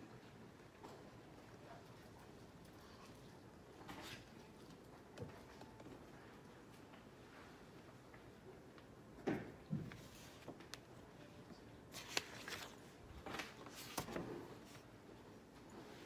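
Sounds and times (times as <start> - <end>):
book pages turning: 9.9 - 10.9, 11.9 - 14.9.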